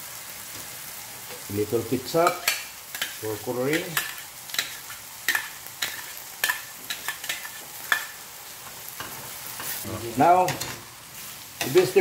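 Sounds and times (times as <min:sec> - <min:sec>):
vegetables sizzling in a pan: 0:00.0 - 0:12.0
metal turner scraping a pan: 0:09.0 - 0:12.0.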